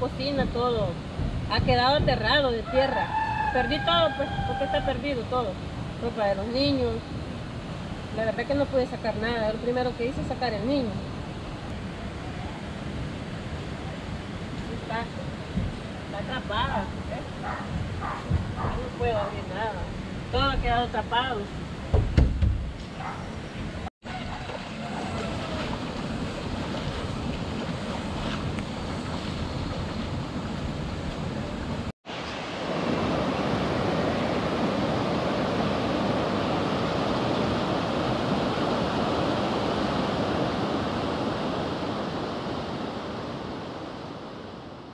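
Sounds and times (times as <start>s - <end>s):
river water rushing: 24.0s - 44.8s.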